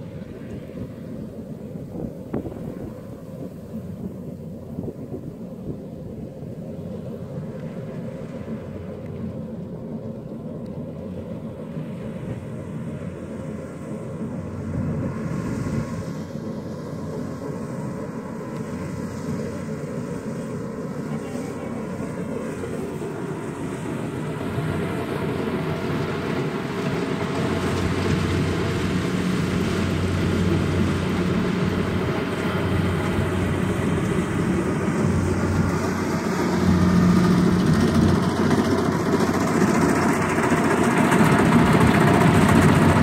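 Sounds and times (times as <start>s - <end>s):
wind buffeting microphone: 0.0s - 10.2s
combine harvester engine rumble: 0.0s - 43.0s.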